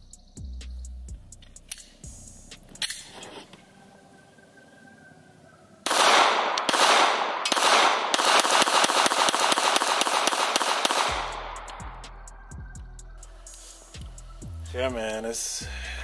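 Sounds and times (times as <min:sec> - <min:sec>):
pistol shots: 0:05.8 - 0:11.7
gunshot echoes: 0:05.9 - 0:11.5.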